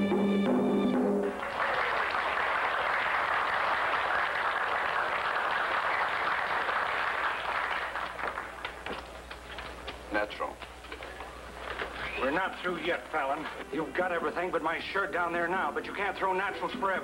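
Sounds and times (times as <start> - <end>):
music: 0.0 - 1.5
crowd applauding: 1.2 - 9.4.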